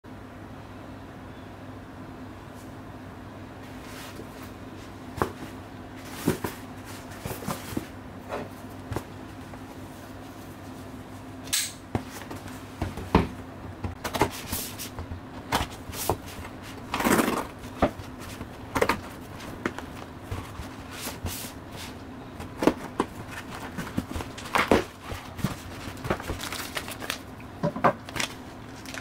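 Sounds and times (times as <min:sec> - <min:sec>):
steady low hum: 0:00.1 - 0:29.0
cardboard box taps and rustles: 0:22.4 - 0:28.3.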